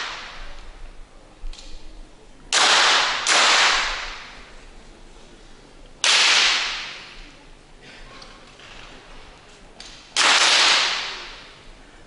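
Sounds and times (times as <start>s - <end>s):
pistol shots echoing: 2.5s - 4.3s, 10.2s - 11.3s.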